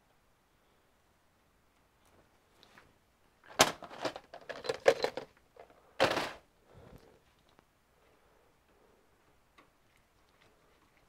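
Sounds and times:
metal clatter: 0:03.5 - 0:05.3
hand tool and metal parts rattling: 0:03.5 - 0:06.4.

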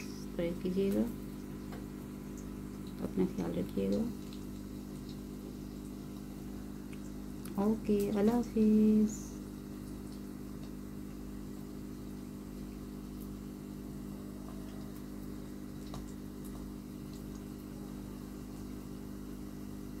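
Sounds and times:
small motor humming: 0:00.0 - 0:01.7.

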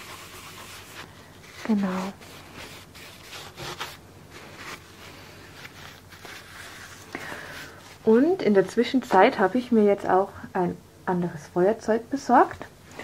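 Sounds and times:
soft scrapes: 0:00.0 - 0:08.4
cloth rubbing and rustling: 0:00.0 - 0:09.3.

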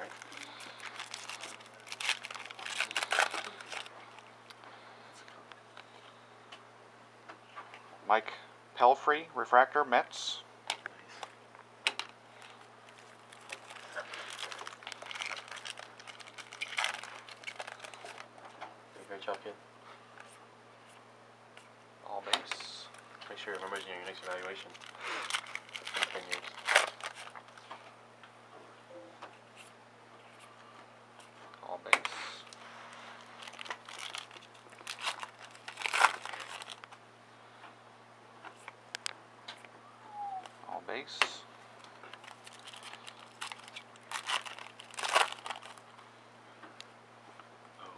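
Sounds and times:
foil wrapper tearing and crinkling: 0:00.0 - 0:04.0, 0:12.4 - 0:18.3, 0:23.5 - 0:27.4, 0:32.9 - 0:36.9, 0:42.1 - 0:45.8.

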